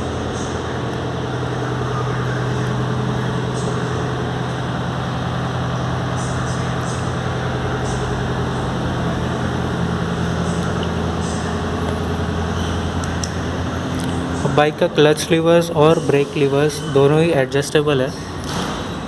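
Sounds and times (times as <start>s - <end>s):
motorcycle engine idling: 0.0s - 14.6s.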